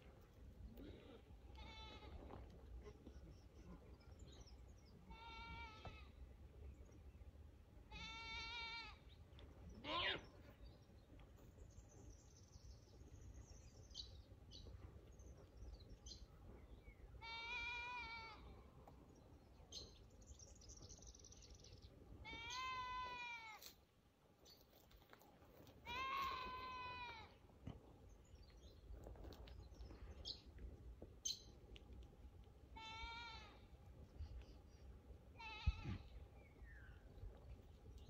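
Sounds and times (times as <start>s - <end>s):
goats bleating: 25.8s - 27.3s.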